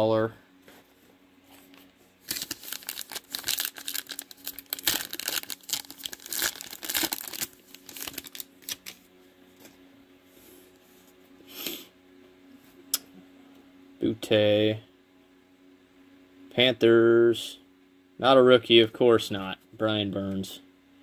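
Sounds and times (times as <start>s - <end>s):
wrapper tearing and crinkling: 2.2s - 9.1s.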